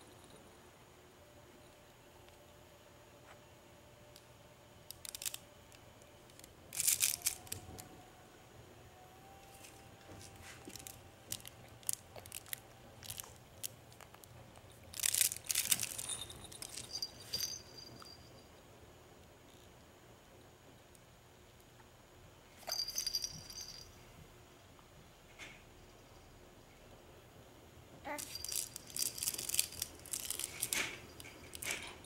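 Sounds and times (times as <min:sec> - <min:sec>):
fabric toy crinkling and rustling: 0:04.9 - 0:05.4, 0:06.3 - 0:07.8, 0:09.4 - 0:17.6, 0:28.1 - 0:32.0.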